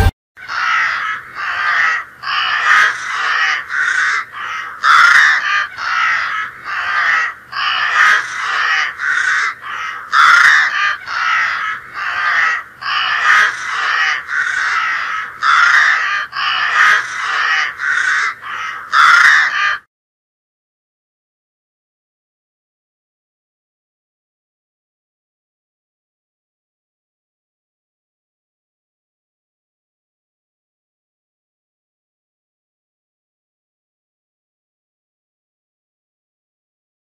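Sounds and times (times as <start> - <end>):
crows cawing: 0.4 - 19.9.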